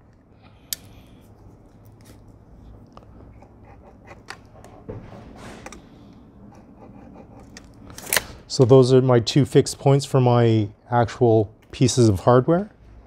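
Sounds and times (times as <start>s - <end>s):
pencil scratch: 3.4s - 4.8s, 6.5s - 7.6s.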